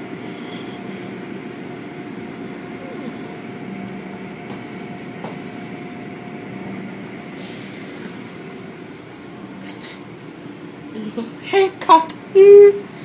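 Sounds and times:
car wash machinery: 0.0 - 12.0.

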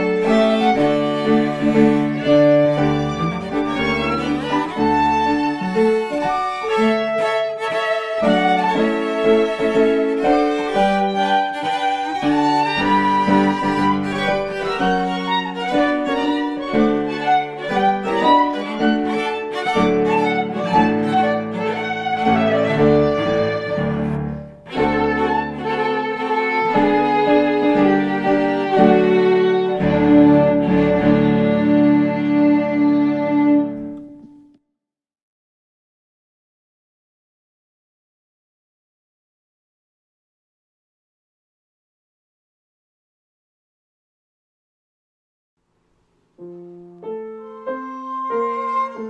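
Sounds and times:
classical chamber music: 0.0 - 34.6, 46.1 - 49.0.

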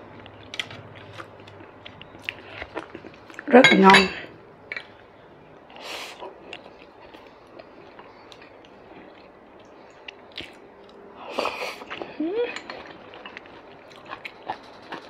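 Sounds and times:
chewing food with mouth clicks: 0.2 - 3.5, 5.6 - 11.0, 11.7 - 15.0.

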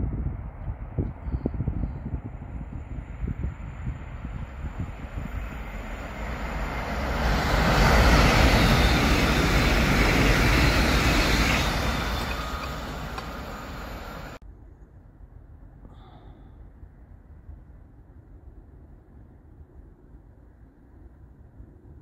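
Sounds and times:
passenger train passing: 2.7 - 14.4.

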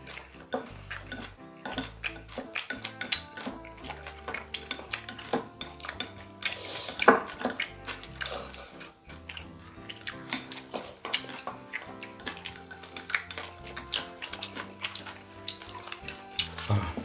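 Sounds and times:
chopsticks tapping ceramic bowls: 0.0 - 17.0
soft background music: 0.0 - 17.0.

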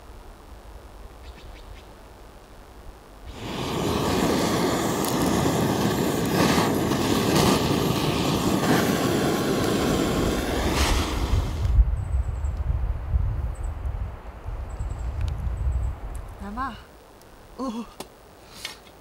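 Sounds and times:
gas torch rushing: 3.3 - 11.9.

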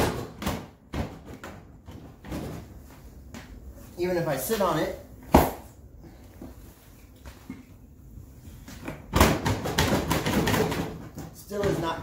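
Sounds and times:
plastic tool boxes knocking and rattling: 0.0 - 2.8, 8.8 - 12.0.

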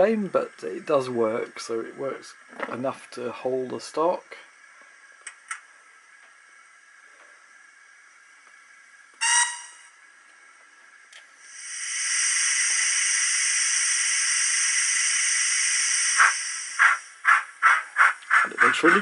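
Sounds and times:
model locomotive whistle toot: 9.2 - 10.0
steam hiss: 11.3 - 19.0
steam exhaust chuffs: 11.4 - 19.0.

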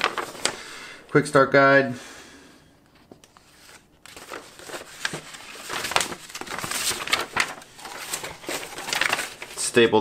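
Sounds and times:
paper sheets rustling: 0.0 - 0.8, 2.9 - 10.0.

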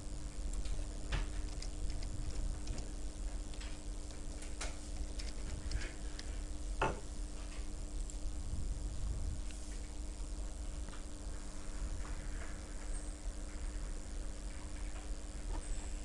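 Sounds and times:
low electrical hum: 0.0 - 16.0
keyboard keys clicking: 0.5 - 6.3.

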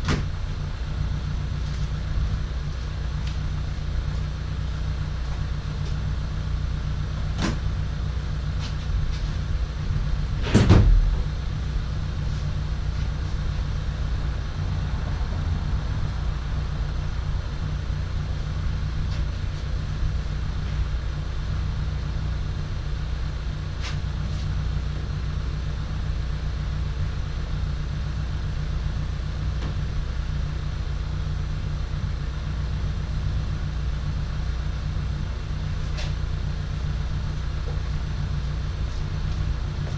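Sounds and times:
steady low hum: 0.0 - 39.9
hardtop clunk: 10.4 - 11.2.

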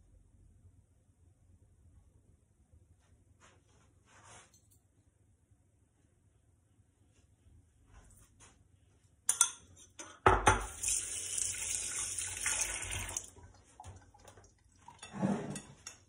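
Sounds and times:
kitchen tap running: 10.3 - 15.1.

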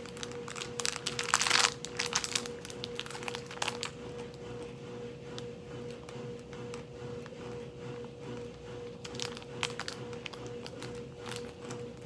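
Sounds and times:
plastic wrapper crinkling: 0.0 - 4.3, 8.8 - 12.0.

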